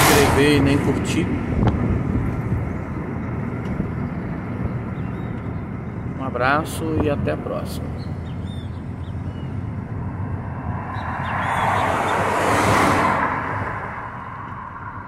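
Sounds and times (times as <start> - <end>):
passing vehicle whoosh: 0.0 - 3.2, 9.1 - 15.0
car road and engine rumble: 0.0 - 15.0.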